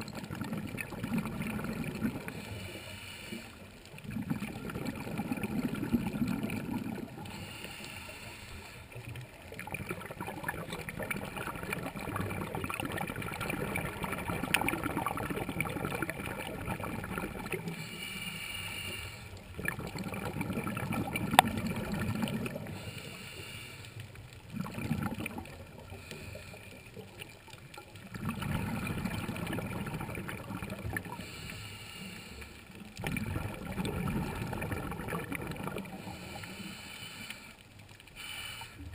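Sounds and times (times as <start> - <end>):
exhaled bubbles burbling: 0.0 - 2.4, 3.9 - 7.4, 9.0 - 17.8, 19.4 - 22.8, 24.4 - 31.3, 32.8 - 36.4
regulator breathing hiss: 2.3 - 3.7, 7.3 - 9.0, 17.7 - 19.4, 22.7 - 24.0, 31.2 - 32.6, 36.0 - 38.9.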